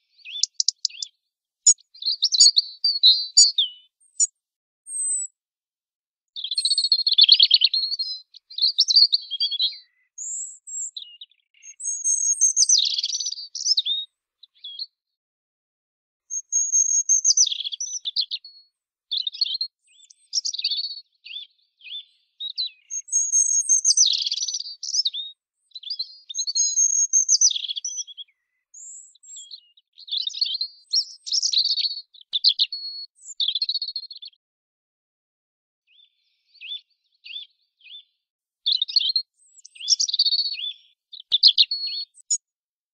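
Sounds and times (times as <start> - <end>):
robin singing: 0.0 - 5.3, 6.4 - 15.0, 16.3 - 34.4, 35.9 - 42.5.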